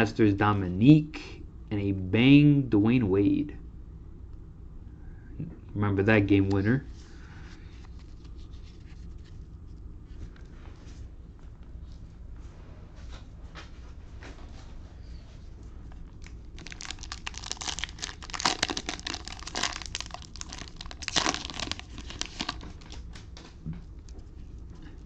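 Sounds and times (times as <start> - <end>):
cellophane wrapper crinkling: 16.0 - 25.0.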